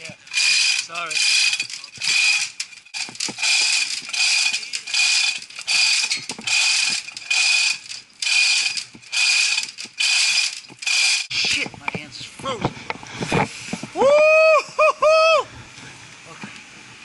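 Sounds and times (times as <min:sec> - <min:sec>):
chain hoist ratcheting: 0:00.0 - 0:11.4.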